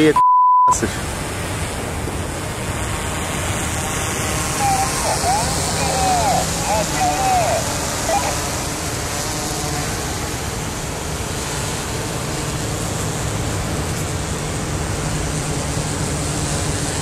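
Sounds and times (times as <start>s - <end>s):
heavy surf roaring: 0.8s - 11.1s.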